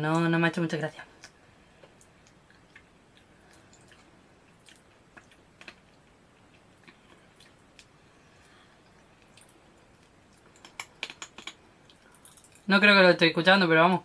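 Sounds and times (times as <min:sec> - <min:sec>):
light chewing: 0:01.1 - 0:12.7
popping candy crackling: 0:10.1 - 0:12.7.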